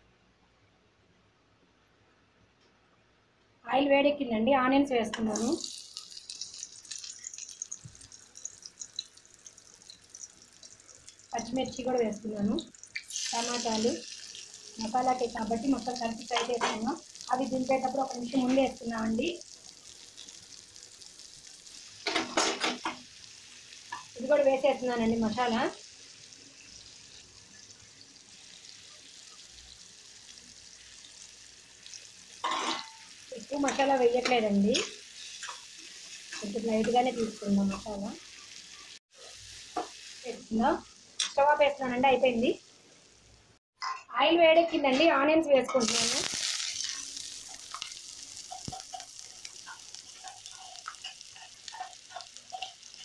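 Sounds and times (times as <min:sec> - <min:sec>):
faint sizzle of frying vegetables: 0:05.1 - 0:44.0, 0:44.6 - 0:53.0
oil crackling and popping: 0:05.3 - 0:24.3, 0:45.8 - 0:53.0.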